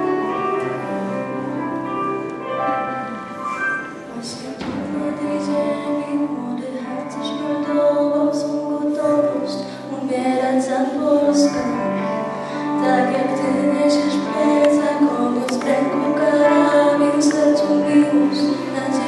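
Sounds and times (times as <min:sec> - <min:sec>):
girl singing into microphone: 0:03.9 - 0:19.0.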